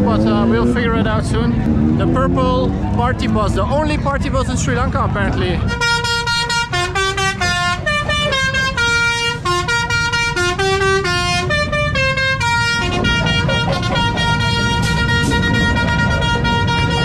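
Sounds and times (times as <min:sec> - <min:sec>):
bus musical horn: 0:05.6 - 0:17.0.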